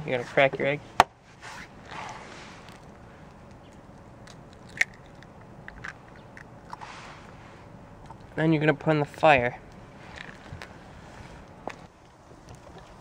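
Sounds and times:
soft rustle: 0:01.2 - 0:04.0, 0:06.7 - 0:07.8, 0:10.0 - 0:13.0
eggshell crackling: 0:01.8 - 0:08.4.

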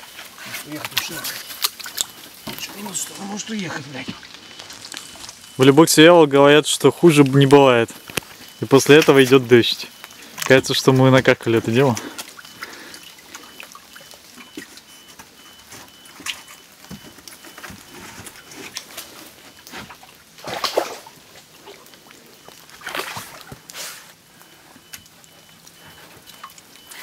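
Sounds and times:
rain dripping: 0:00.0 - 0:27.0
splashes in muddy water: 0:19.5 - 0:21.9, 0:22.7 - 0:23.7.

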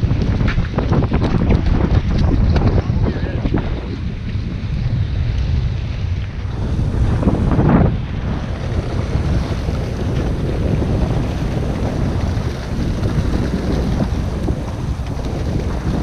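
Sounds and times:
sea washing along hull: 0:00.0 - 0:16.0
wind buffeting microphone: 0:00.0 - 0:16.0.

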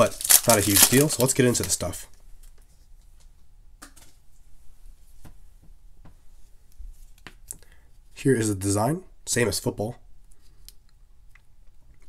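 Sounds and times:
handling trading cards: 0:00.0 - 0:02.7.

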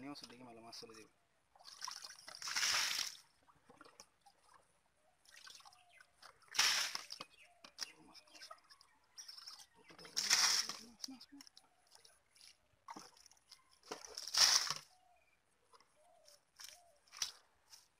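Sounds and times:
muddy water sloshing in a pot: 0:01.5 - 0:15.0.

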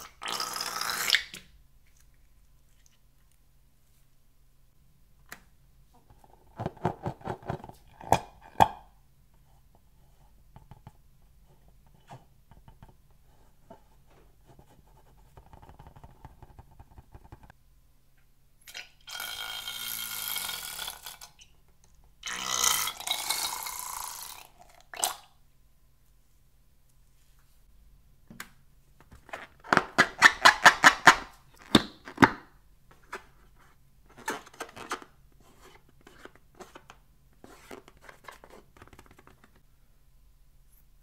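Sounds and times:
slime squelching and squealing: 0:00.0 - 0:01.4.

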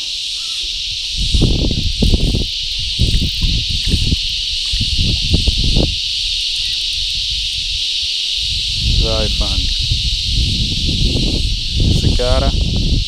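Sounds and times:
insects buzzing: 0:00.0 - 0:13.0
low thumps and rumbles: 0:01.2 - 0:06.0, 0:08.5 - 0:13.0.

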